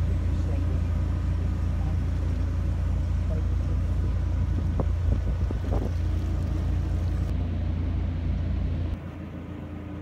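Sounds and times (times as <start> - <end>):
boat engine running: 0.0 - 10.0
wind buffeting microphone: 4.3 - 7.3.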